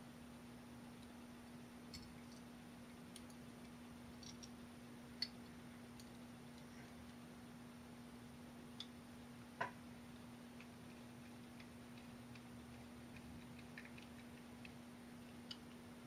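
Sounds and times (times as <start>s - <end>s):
steady hum: 0.0s - 16.0s
screwdriver and metal parts clicking: 4.2s - 4.5s.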